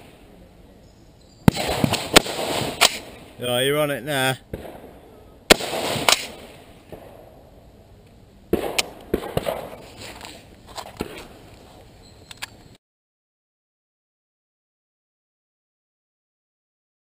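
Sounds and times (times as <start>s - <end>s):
rifle shots cracking with echo: 1.4s - 3.4s, 4.5s - 7.4s, 8.5s - 9.9s
small clicks: 12.2s - 12.8s.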